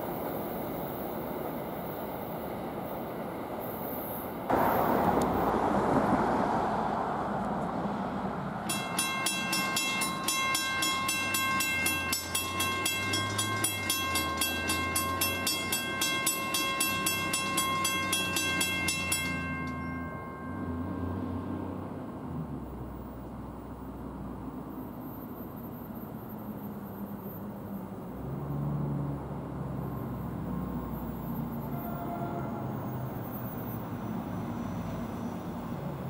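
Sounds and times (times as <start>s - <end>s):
rail traffic rumble: 0.0s - 36.0s
loud rushing noise: 4.5s - 8.6s
crossing bell ringing: 8.6s - 22.4s, 31.6s - 33.8s.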